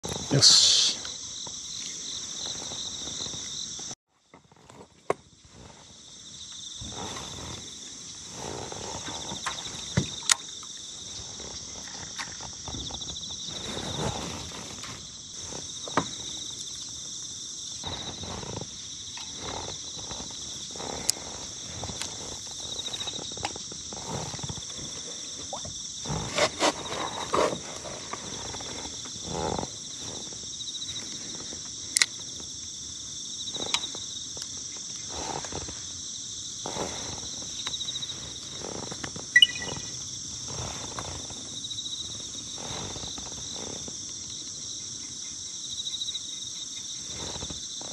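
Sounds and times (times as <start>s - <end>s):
insects chirring: 0.0s - 47.9s
brief high chirp: 39.4s - 39.9s.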